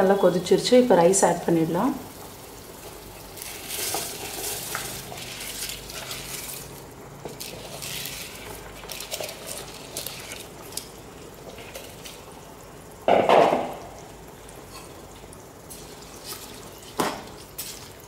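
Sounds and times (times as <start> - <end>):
pot bubbling: 0.0 - 18.0
rice grains pattering into pot: 2.1 - 18.0
kitchenware clatter: 13.1 - 13.8.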